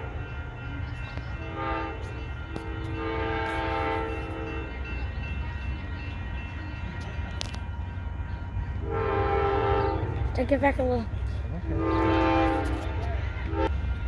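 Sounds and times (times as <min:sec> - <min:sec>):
train horn blasts: 0:01.4 - 0:04.9, 0:08.7 - 0:10.3, 0:11.6 - 0:14.0.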